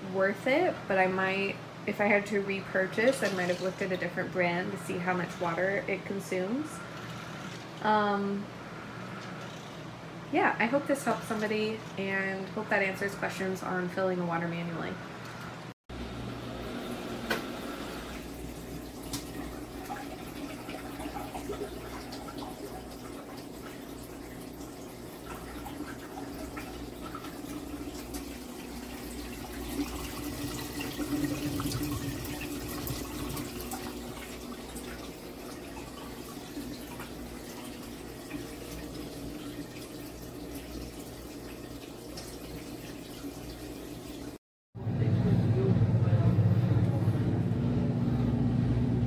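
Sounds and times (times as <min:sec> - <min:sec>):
water churning in washer tub: 0:15.9 - 0:44.4
low motor hum: 0:44.8 - 0:49.0.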